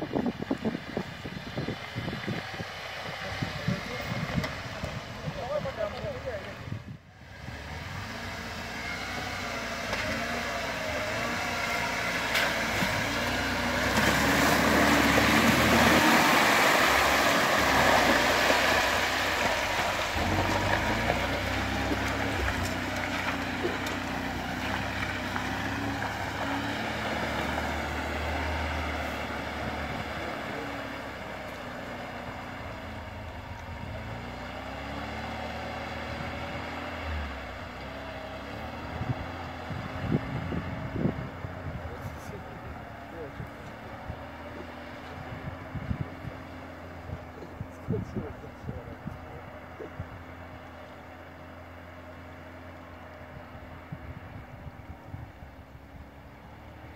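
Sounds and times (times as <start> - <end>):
engine running under load: 0.0 - 56.9
tyres churning and splashing water: 12.0 - 28.8.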